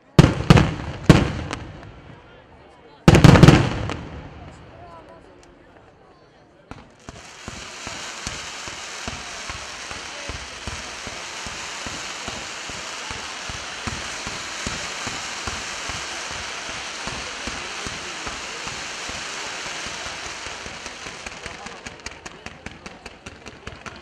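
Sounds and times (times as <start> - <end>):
fireworks crackling pops: 6.7 - 24.0
fireworks hiss: 6.8 - 23.8.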